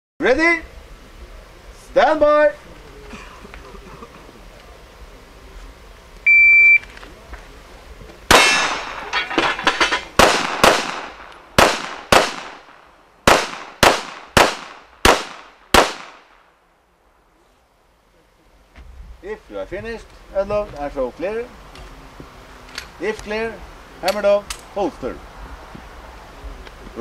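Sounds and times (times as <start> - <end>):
shot timer beep: 6.3 - 6.8
pistol shots: 8.3 - 9.1, 10.2 - 16.4
steel targets ringing: 8.3 - 10.2.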